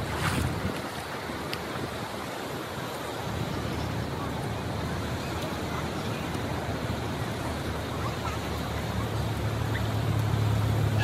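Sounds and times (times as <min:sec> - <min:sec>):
wind noise: 0:00.0 - 0:08.0
surf washing: 0:00.0 - 0:11.0.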